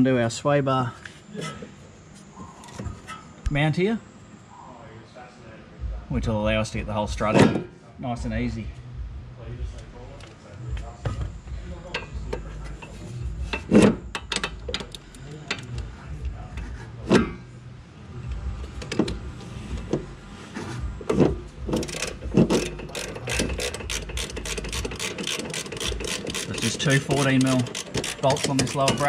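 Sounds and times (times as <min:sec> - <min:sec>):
socket ratchet clicking: 0:21.7 - 0:29.0.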